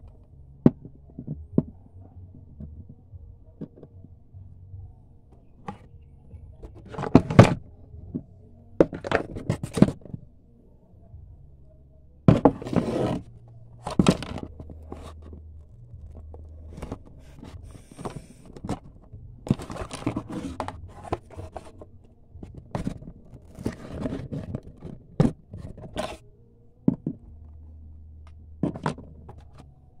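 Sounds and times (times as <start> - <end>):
cardboard scraping and knocking: 5.6 - 10.2, 12.3 - 26.2, 28.6 - 29.7.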